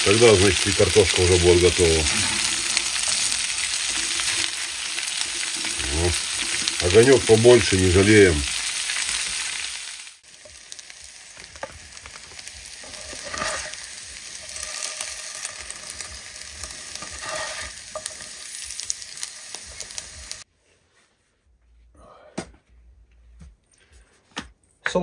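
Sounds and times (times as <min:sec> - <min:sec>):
food sizzling in a frying pan: 0:00.0 - 0:20.5
metal spatula scraping a pan: 0:01.5 - 0:06.8, 0:12.6 - 0:20.4.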